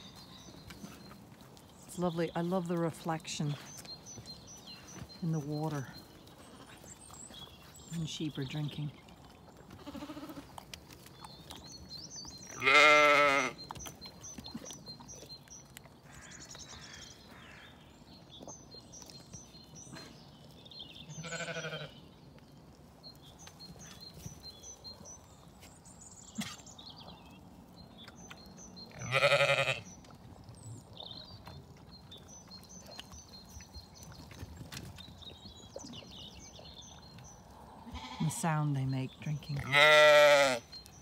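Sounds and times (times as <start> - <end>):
sheep sipping water: 0.0 - 17.3, 22.2 - 38.8
sheep bleating: 9.8 - 10.4, 12.6 - 13.6, 21.1 - 21.9, 29.0 - 29.9, 37.9 - 38.3, 39.6 - 40.7.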